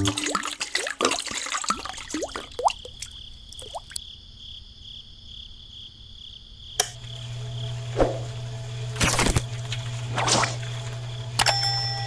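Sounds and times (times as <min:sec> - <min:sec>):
water dripping into a can: 0:00.0 - 0:04.0.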